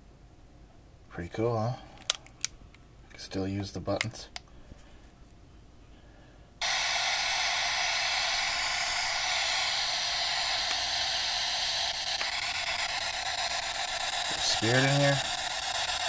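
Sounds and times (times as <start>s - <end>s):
radio static hiss: 6.6s - 16.0s.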